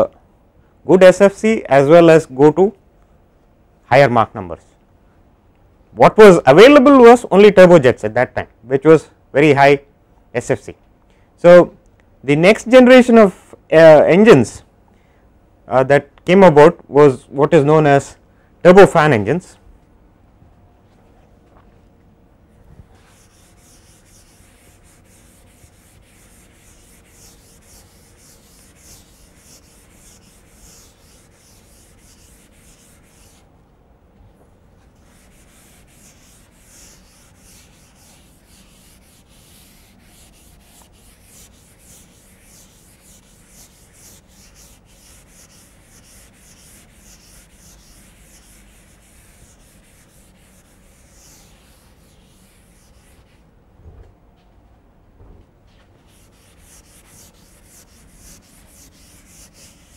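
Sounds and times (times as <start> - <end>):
duster rubbing chalkboard: 22.9 - 33.5, 34.8 - 53.4, 56.0 - 59.9.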